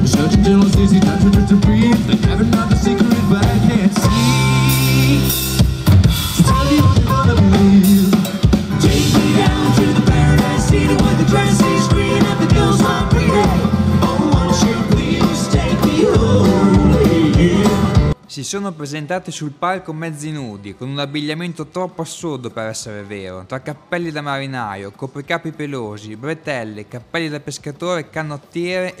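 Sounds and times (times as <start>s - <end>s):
band playing country rock: 0.0s - 18.2s
drum kit: 0.0s - 18.2s.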